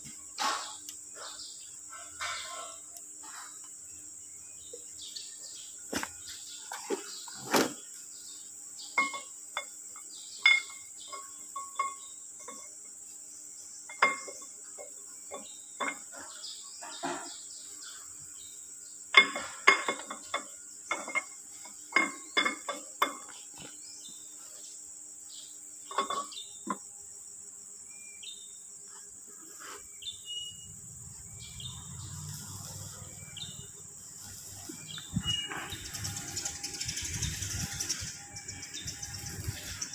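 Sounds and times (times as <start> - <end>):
metal clinks and knocks: 9.0 - 12.9, 13.9 - 17.4, 19.1 - 23.7, 25.9 - 26.9, 34.2 - 39.9.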